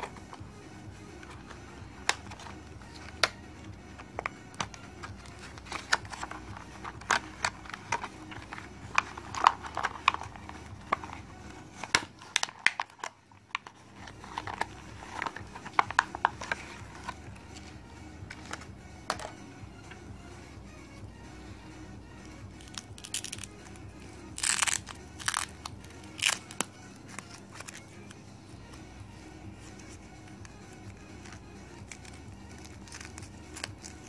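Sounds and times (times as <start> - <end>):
plastic packaging crinkling: 5.2 - 11.2, 24.3 - 27.8.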